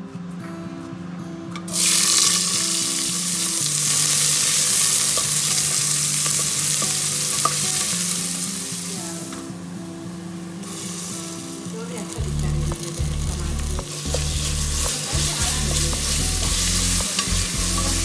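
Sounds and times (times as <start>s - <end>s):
onions sizzling in hot oil: 1.7s - 9.4s, 10.6s - 18.0s
spatula stirring: 3.8s - 8.3s, 10.7s - 18.0s.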